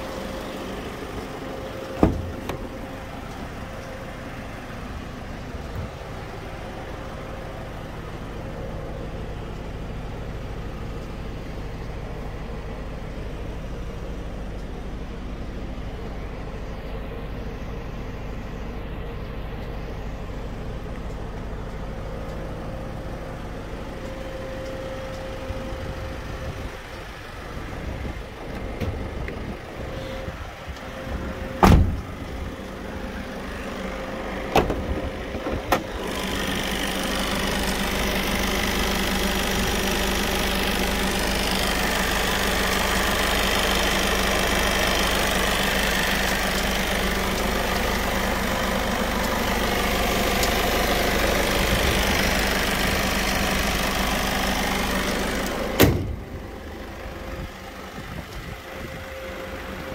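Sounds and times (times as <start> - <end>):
diesel engine idling: 0.0 - 59.9
heavy thump: 2.0 - 2.7, 31.6 - 32.0, 55.8 - 56.2
bonnet shutting bang: 55.8 - 56.2.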